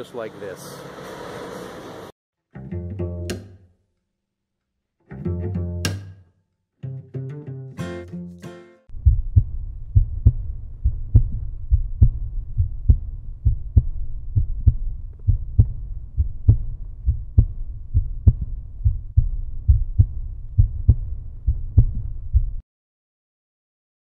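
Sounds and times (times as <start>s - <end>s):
deep heartbeat-like thumps: 8.9s - 22.6s
continuous low rumble: 9.0s - 22.6s.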